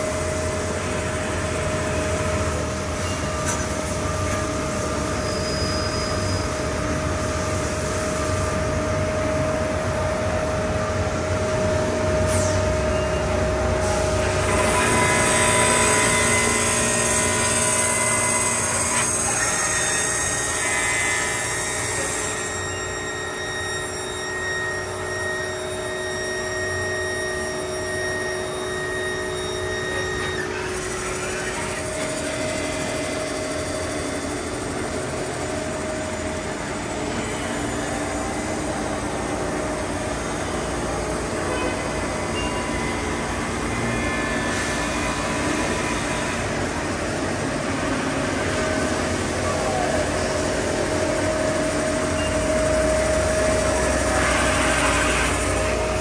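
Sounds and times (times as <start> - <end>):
lathe machine whine: 0.0 - 56.0.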